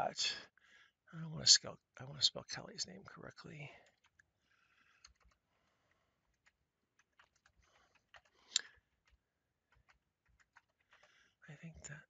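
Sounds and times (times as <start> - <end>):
keyboard typing: 3.8 - 4.3, 5.0 - 11.2.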